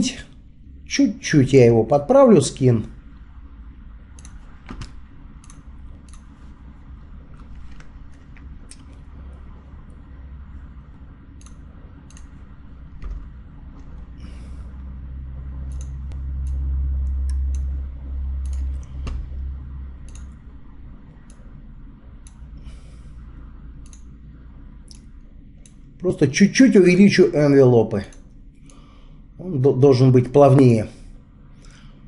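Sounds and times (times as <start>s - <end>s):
low hum: 0.0s - 32.0s
computer mouse clicking: 4.1s - 6.4s, 11.3s - 13.2s, 15.7s - 17.8s, 18.4s - 19.2s, 20.0s - 20.4s, 21.2s - 21.5s, 23.8s - 24.2s.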